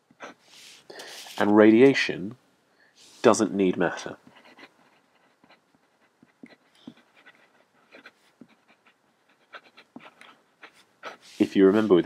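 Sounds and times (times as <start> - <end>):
pen writing on paper: 4.3 - 12.0.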